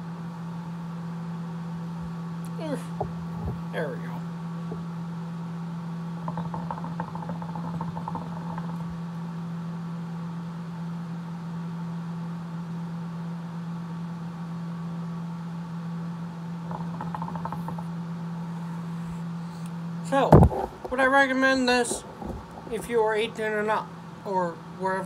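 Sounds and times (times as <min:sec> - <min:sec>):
low hum: 0:00.0 - 0:25.0
hookah water bubbling: 0:01.8 - 0:10.5, 0:16.3 - 0:24.8.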